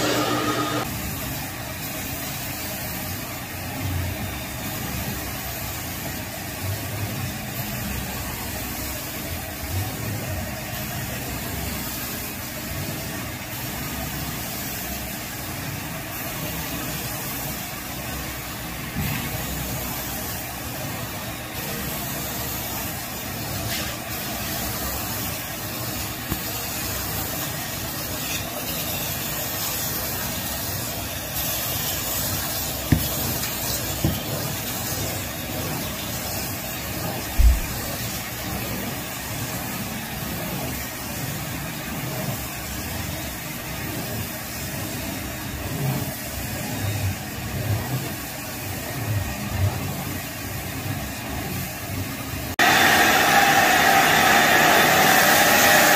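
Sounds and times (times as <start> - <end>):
carpet extractor hissing: 0.0 - 55.9.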